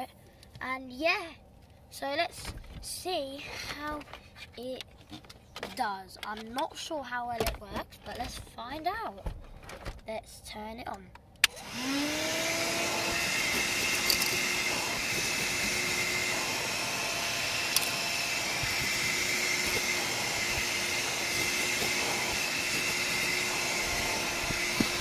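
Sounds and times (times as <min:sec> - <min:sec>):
handheld vacuum cleaner whining: 0:11.4 - 0:25.0.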